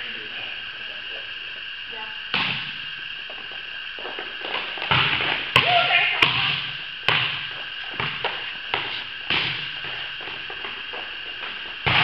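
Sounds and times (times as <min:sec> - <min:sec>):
ball bouncing off gym court: 0:02.3 - 0:02.8, 0:04.4 - 0:10.8, 0:11.4 - 0:12.0
volleyballs being hit: 0:02.3 - 0:02.8, 0:04.5 - 0:12.0.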